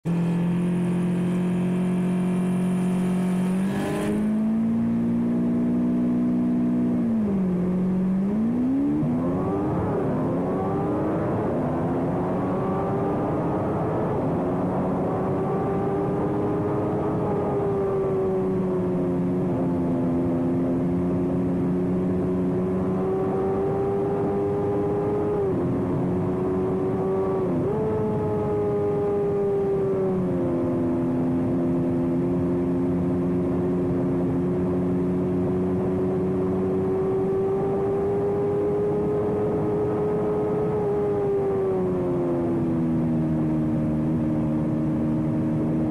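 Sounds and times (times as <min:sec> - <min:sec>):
motorcycle engine revving: 0:00.1 - 0:18.1.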